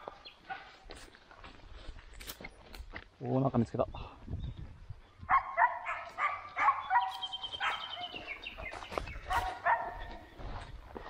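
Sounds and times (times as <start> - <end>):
dog yelping: 5.3 - 8.2, 9.3 - 10.2.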